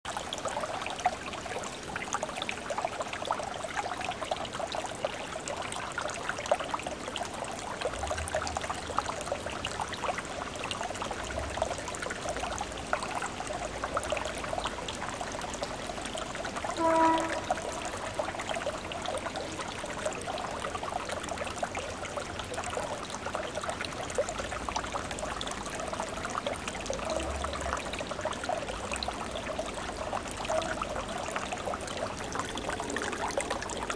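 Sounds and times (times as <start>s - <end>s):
gas bubbles gurgling in water: 3.3s - 33.9s
short pitched note: 16.8s - 18.2s.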